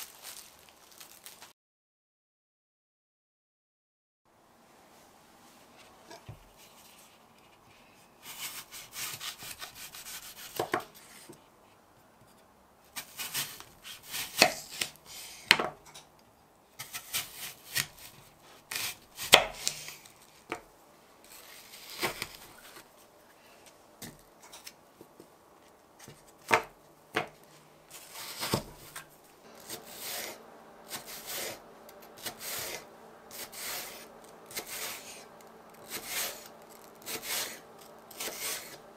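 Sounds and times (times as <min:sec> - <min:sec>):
knife cutting on cutting board: 0:08.2 - 0:11.0, 0:13.0 - 0:15.4, 0:16.8 - 0:20.0, 0:28.0 - 0:29.0, 0:29.6 - 0:38.8.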